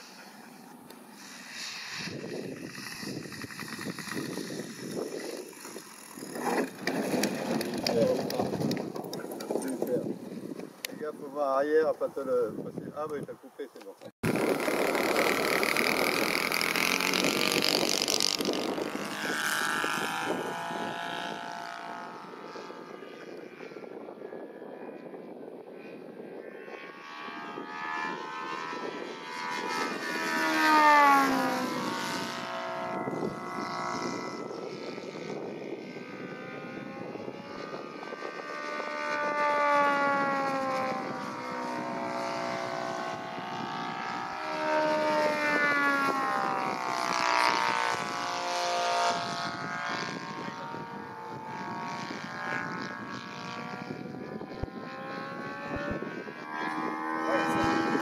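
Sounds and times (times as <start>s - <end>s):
model plane engine flying past: 0.0s - 58.0s.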